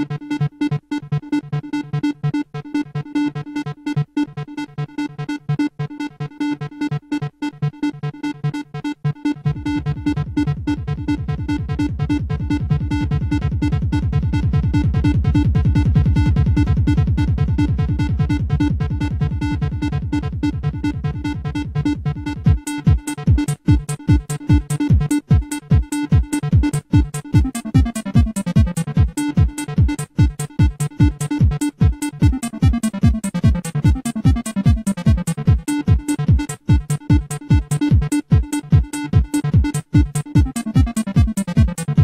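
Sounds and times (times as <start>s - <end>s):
fast repeating synthesizer pattern: 0.0s - 42.0s
deep sustained synth bass: 9.4s - 22.6s.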